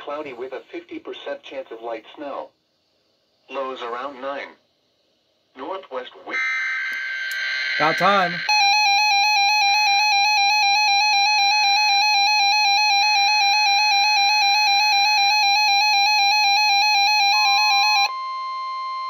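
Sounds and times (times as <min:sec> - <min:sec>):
pulsing electronic alarm tone: 0:06.3 - 0:19.0
steady alert tone: 0:07.0 - 0:09.0.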